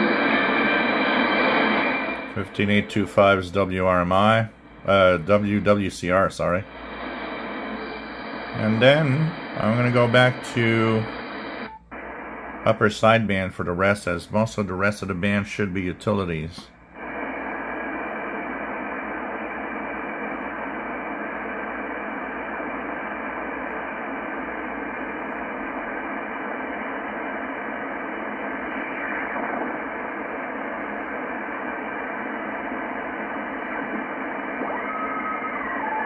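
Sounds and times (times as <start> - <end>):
faint steady radio tone: 0.0 - 36.0
radio static hiss: 0.0 - 36.0.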